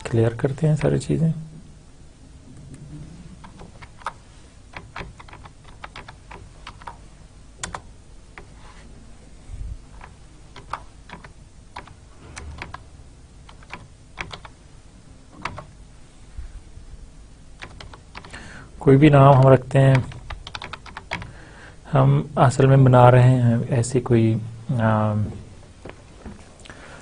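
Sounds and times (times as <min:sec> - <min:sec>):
keyboard typing clicks: 0:03.4 - 0:07.0, 0:07.6 - 0:08.5, 0:09.9 - 0:12.8, 0:13.4 - 0:14.6, 0:15.4 - 0:15.8, 0:17.6 - 0:18.4, 0:19.3 - 0:21.3.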